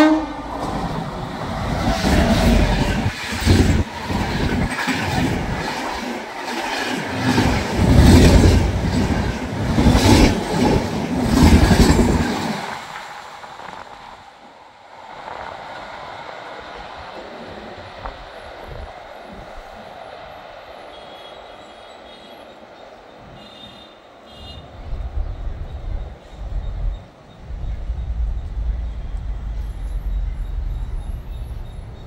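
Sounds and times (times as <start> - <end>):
train passing with heavy rumble: 0.0 - 32.0
train wheels clacking over rail joints: 1.8 - 13.1.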